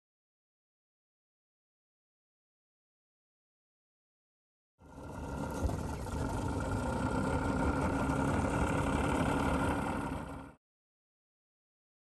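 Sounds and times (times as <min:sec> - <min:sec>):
outboard motor running: 0:04.8 - 0:10.6.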